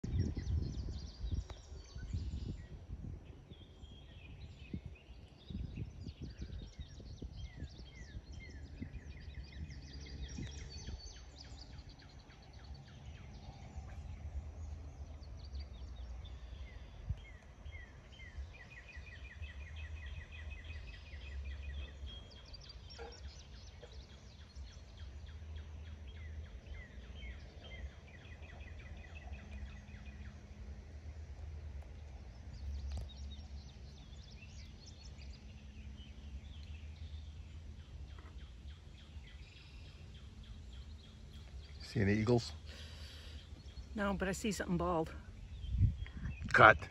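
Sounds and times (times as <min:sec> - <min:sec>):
birds singing and calling: 0:00.0 - 0:30.8, 0:31.4 - 0:46.9
steady low rumble: 0:00.0 - 0:46.9.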